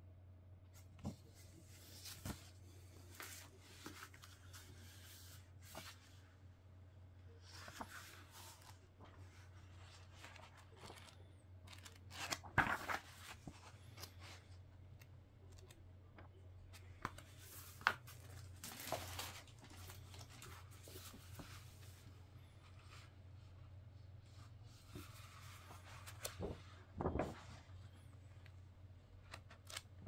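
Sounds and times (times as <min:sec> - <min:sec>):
packaging rustling and crinkling: 0:17.4 - 0:21.5.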